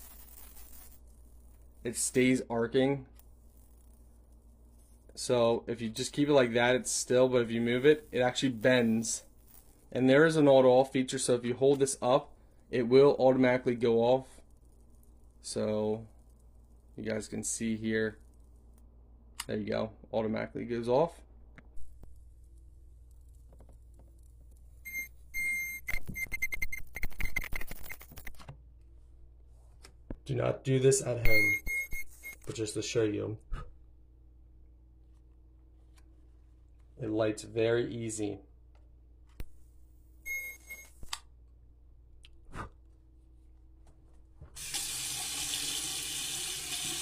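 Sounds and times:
electric arc lighter buzzing: 0.0s - 2.3s, 6.6s - 10.5s
water running into sink: 44.6s - 47.0s.

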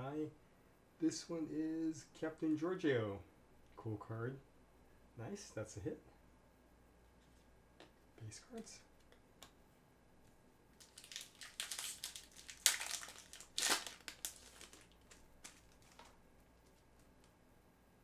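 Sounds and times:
foil wrapper crinkling: 10.8s - 17.1s.

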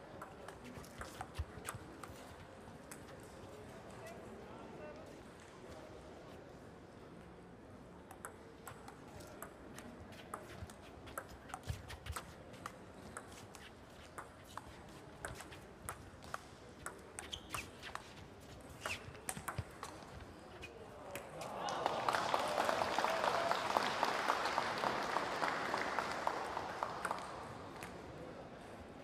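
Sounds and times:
table tennis ball clicking: 18.9s - 20.0s.

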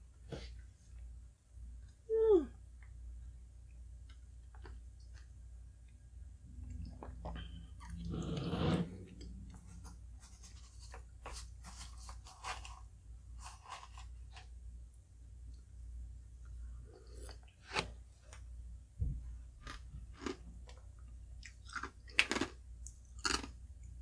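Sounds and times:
low steady hum: 0.0s - 24.0s
chewing and crunching: 19.6s - 23.9s.

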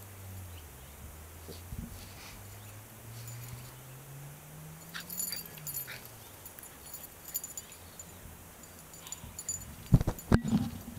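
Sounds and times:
low hum: 0.0s - 10.9s
light jingles: 1.5s - 10.9s
dogs playing tug: 4.6s - 10.8s.

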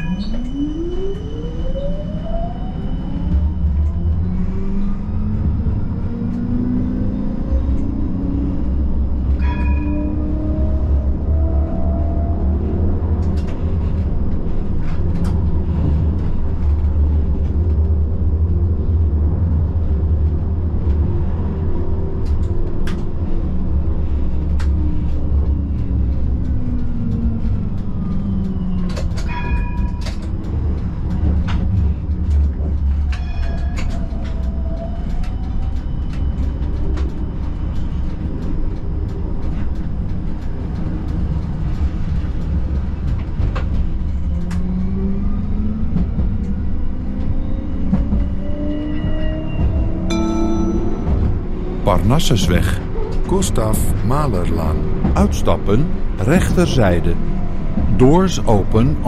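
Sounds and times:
tram rumbling on rails: 0.0s - 59.0s
brief ringing tones: 50.1s - 51.8s.

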